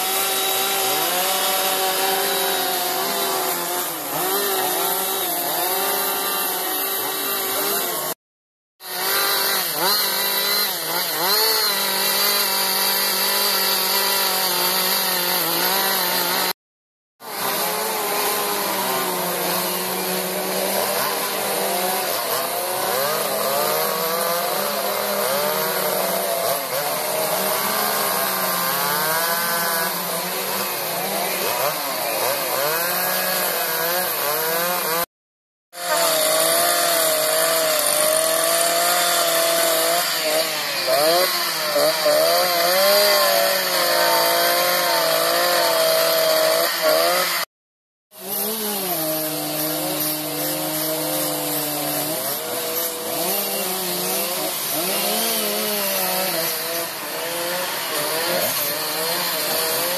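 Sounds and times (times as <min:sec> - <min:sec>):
chainsaws revving: 0:00.0 - 0:08.2, 0:08.8 - 0:16.6, 0:17.2 - 0:35.1, 0:35.7 - 0:47.5, 0:48.1 - 0:59.9.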